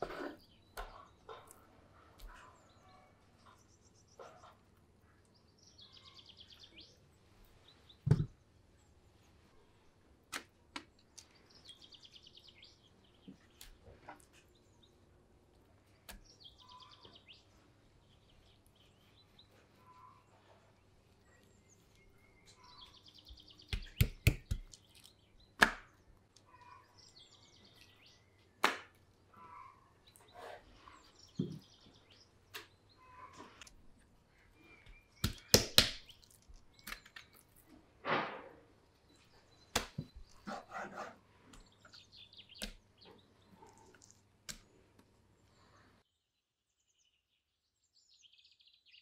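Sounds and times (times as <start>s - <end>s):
bird singing trills: 5.5s - 7.0s, 16.2s - 17.5s, 21.2s - 25.5s.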